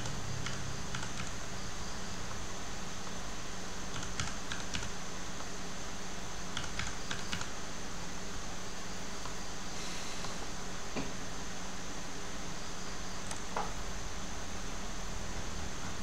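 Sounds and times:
steady background hiss: 0:00.0 - 0:16.0
keyboard keystrokes: 0:03.9 - 0:04.9.

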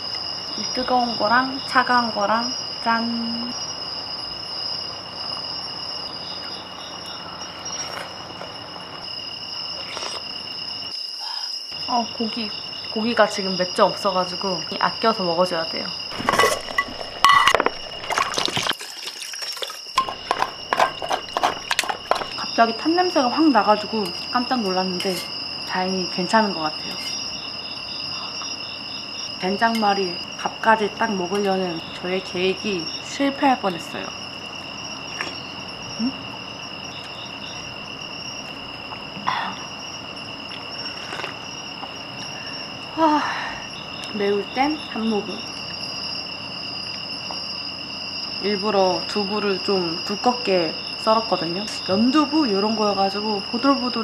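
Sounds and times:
crickets chirping: 0:00.0 - 0:54.0
broth liquid sounds: 0:16.1 - 0:20.8
spoon clinking in bowl: 0:16.2 - 0:18.5.

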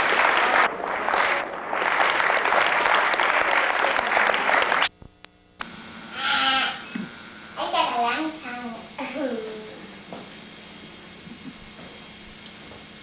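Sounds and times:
audience applauding: 0:00.0 - 0:04.9.

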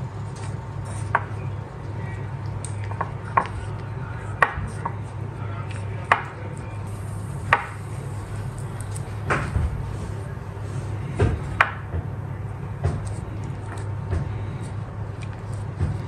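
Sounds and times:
low hum: 0:06.7 - 0:13.6.

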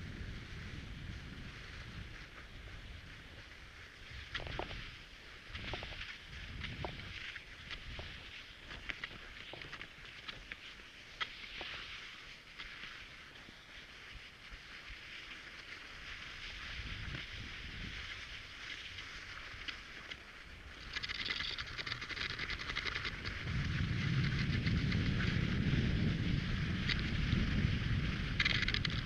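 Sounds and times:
skis hissing over snow: 0:00.0 - 0:29.0
scattered clicks: 0:19.6 - 0:25.2, 0:28.1 - 0:29.0
low rumble: 0:23.0 - 0:29.0.

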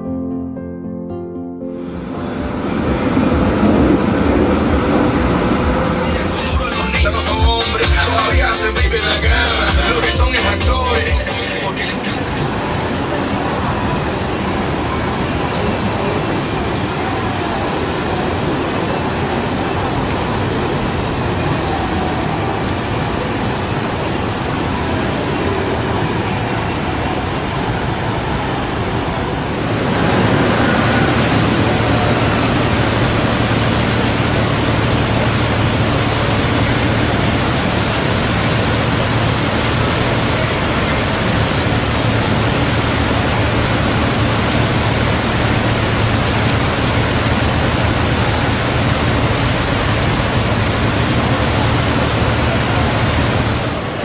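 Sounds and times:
low hum: 0:01.8 - 0:54.0
fountain water splashing: 0:02.1 - 0:54.0.

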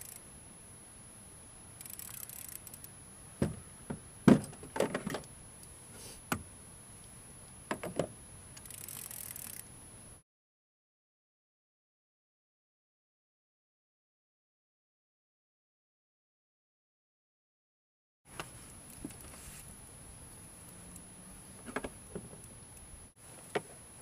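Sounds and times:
hiss: 0:05.9 - 0:06.4.

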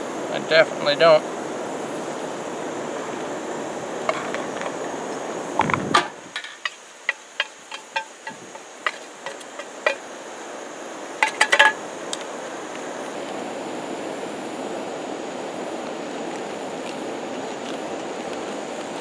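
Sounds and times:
steady rushing noise: 0:00.0 - 0:19.0
metal clinks: 0:06.0 - 0:10.0
spatula tapping metal pan: 0:06.0 - 0:10.0, 0:11.2 - 0:11.8.

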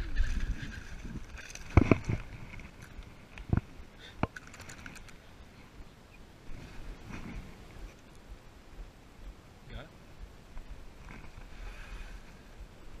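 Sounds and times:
faint clicks: 0:02.8 - 0:05.2.

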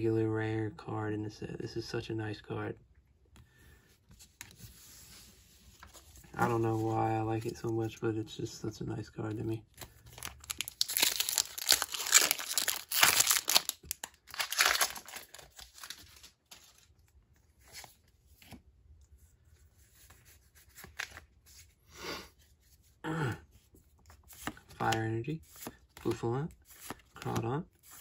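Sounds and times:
cards rustling: 0:04.0 - 0:08.1, 0:09.3 - 0:21.8, 0:23.5 - 0:28.0
foil wrapper tearing: 0:10.2 - 0:16.2.

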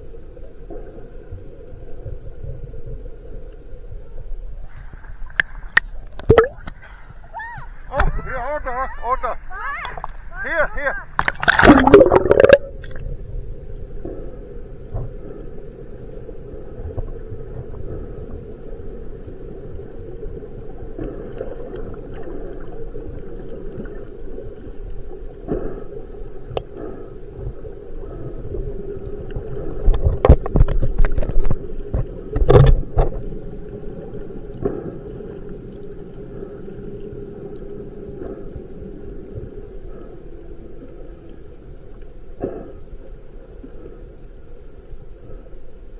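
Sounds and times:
muffled underwater drone: 0:11.6 - 0:45.9.

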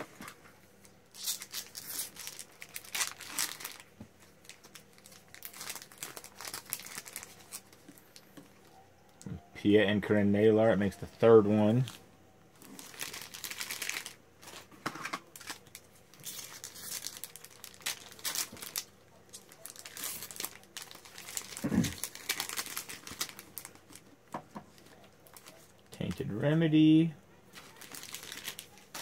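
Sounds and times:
foil wrapper crinkling and tearing: 0:01.0 - 0:08.2, 0:12.6 - 0:26.4, 0:27.5 - 0:29.0.

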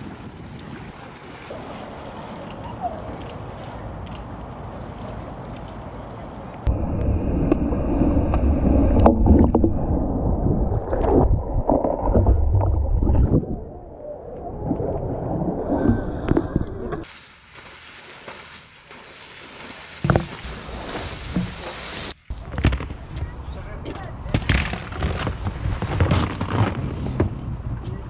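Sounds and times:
elephant splashing through water: 0:00.0 - 0:06.5, 0:17.0 - 0:22.2
churning gurgling water: 0:00.0 - 0:22.2
mud smacking camera: 0:02.3 - 0:06.7, 0:17.4 - 0:22.8.

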